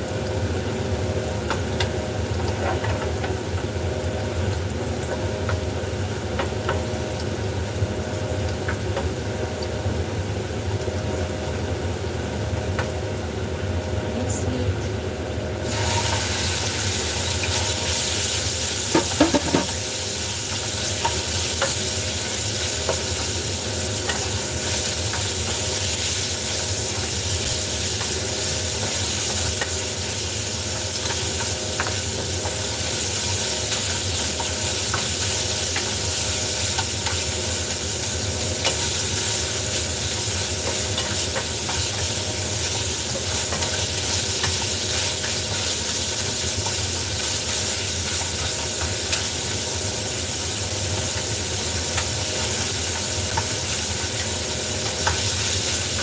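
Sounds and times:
food sizzling in frying pan: 0:00.0 - 0:56.0
wooden spatula knocking pan: 0:18.9 - 0:19.7.

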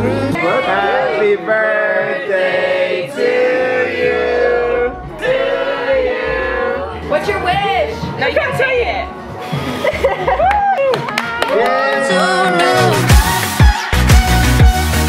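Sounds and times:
voices singing long notes: 0:00.0 - 0:07.1
music: 0:00.0 - 0:15.0.

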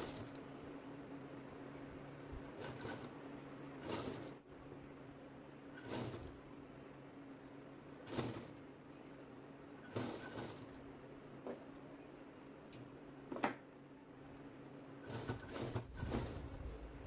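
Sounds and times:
low hum: 0:15.8 - 0:17.0.

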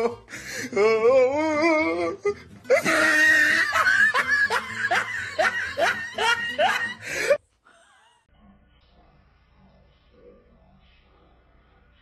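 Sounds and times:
person laughing hard: 0:01.6 - 0:08.2.

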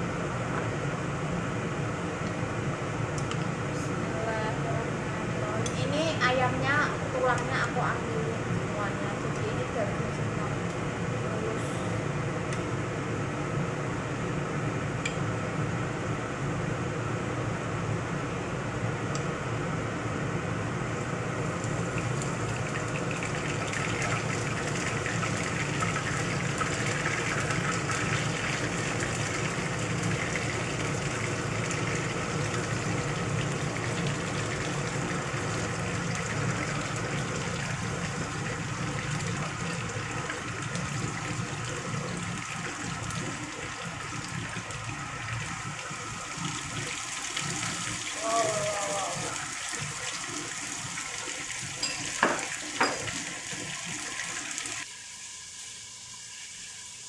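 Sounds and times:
extractor fan humming: 0:00.0 - 0:57.0
chicken sizzling in hot oil: 0:21.4 - 0:57.0.

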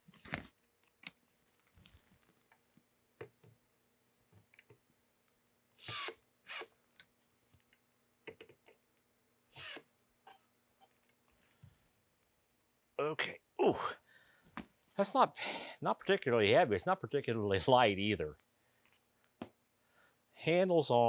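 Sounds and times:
cordless drill driving screws: 0:05.8 - 0:06.7, 0:09.5 - 0:09.9.

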